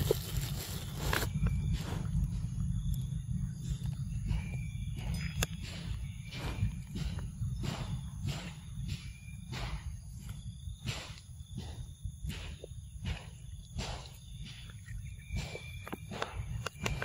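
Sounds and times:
rustling and crunching in grass: 0.0s - 2.1s
low rumble: 0.0s - 17.0s.

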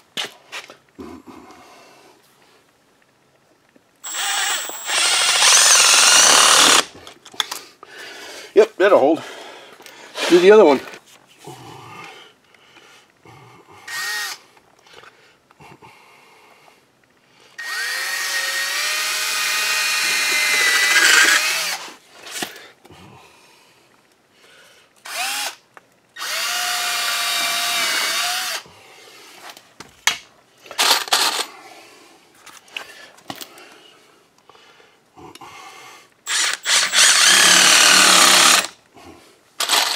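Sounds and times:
cordless drill driving screws: 4.0s - 6.9s, 13.9s - 14.4s, 17.6s - 21.8s, 25.0s - 25.6s, 26.2s - 28.6s, 36.3s - 38.8s, 39.6s - 39.9s.

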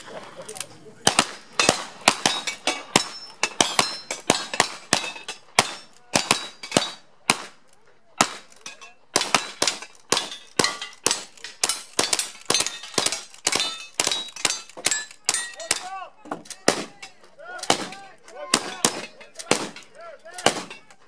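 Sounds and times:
rifle shots: 1.0s - 7.6s, 8.2s - 14.6s, 17.6s - 20.9s
bullets ringing on steel targets: 1.1s - 7.5s, 8.2s - 21.0s.

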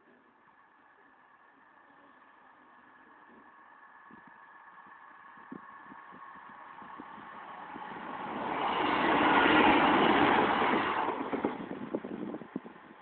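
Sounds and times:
vehicle passing by: 6.4s - 11.9s.

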